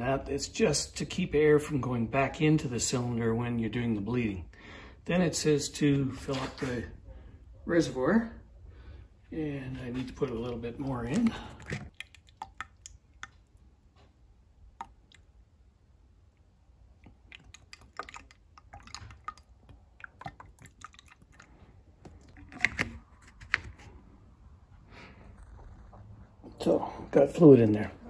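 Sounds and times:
fluid pouring from a bottle: 0:10.2 - 0:13.7, 0:17.0 - 0:23.0.

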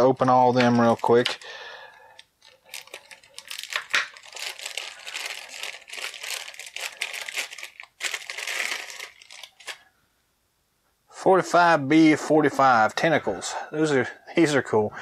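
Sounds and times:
plastic bag crinkling and tearing: 0:00.0 - 0:09.8.

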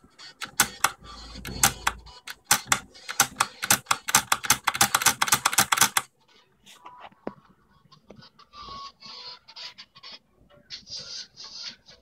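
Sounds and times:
typewriter typebars clacking: 0:00.4 - 0:06.1.

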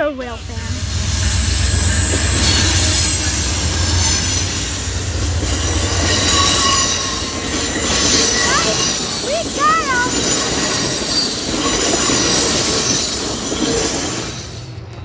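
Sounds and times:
train wheels rumbling on rails: 0:00.0 - 0:15.0
high-pitched wheel squeal: 0:00.5 - 0:09.4, 0:10.1 - 0:14.7.

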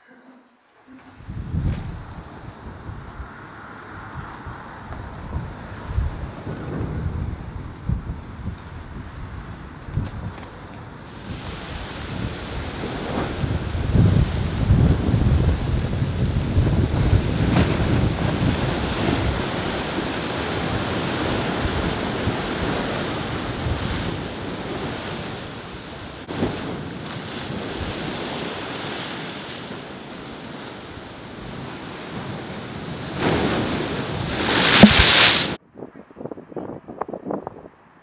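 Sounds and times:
wind buffeting microphone: 0:01.1 - 0:38.0
waves crashing against wall: 0:11.1 - 0:35.6
spray landing: 0:34.4 - 0:35.6.

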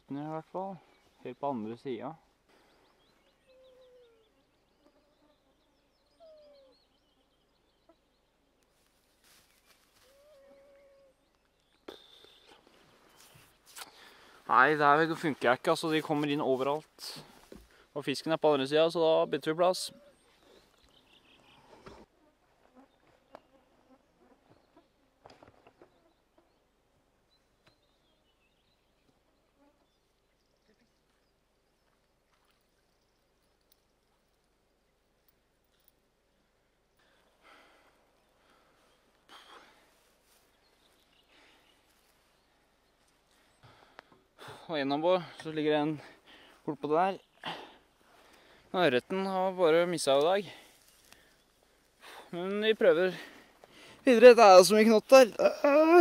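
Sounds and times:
faint high bird chirps: 0:02.8 - 0:08.3.

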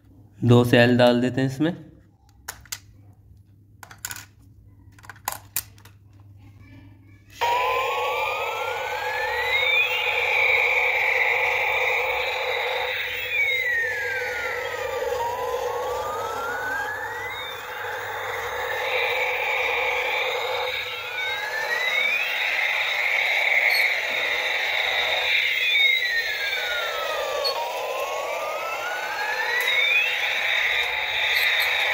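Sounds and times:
batteries clicking into toy: 0:02.3 - 0:02.9, 0:03.8 - 0:06.2
toy electronic siren wail: 0:07.4 - 0:31.9.

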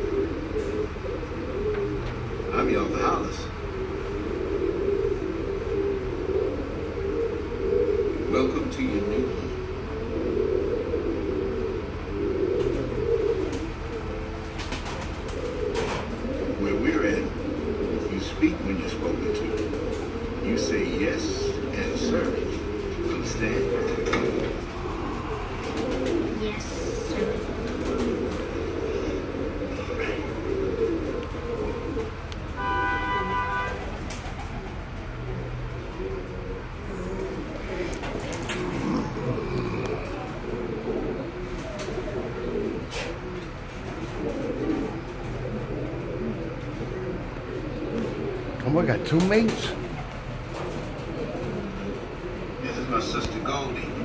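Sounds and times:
pigeons cooing: 0:00.0 - 0:54.0
horn-like tone: 0:32.6 - 0:33.8.

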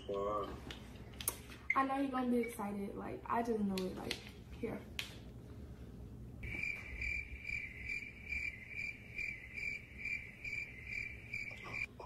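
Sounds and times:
crickets chirping: 0:06.4 - 0:11.9.

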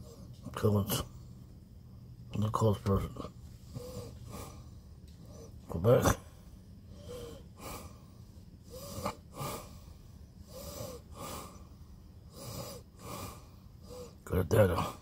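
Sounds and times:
man breathing: 0:03.5 - 0:05.6, 0:06.2 - 0:15.0.

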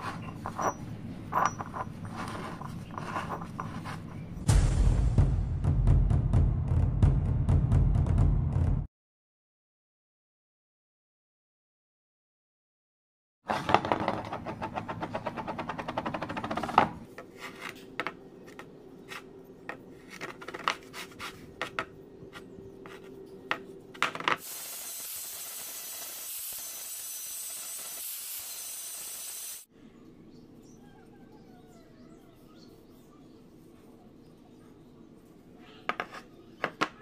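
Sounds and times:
scraping metal: 0:00.0 - 0:04.4
steady hiss: 0:24.4 - 0:29.7.

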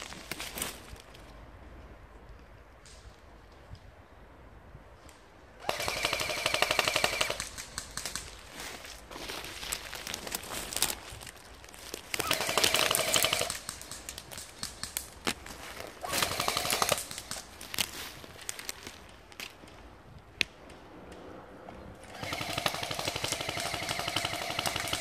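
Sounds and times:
airsoft gun firing bursts: 0:05.6 - 0:08.3, 0:12.2 - 0:15.0, 0:16.0 - 0:17.4, 0:22.0 - 0:25.0.

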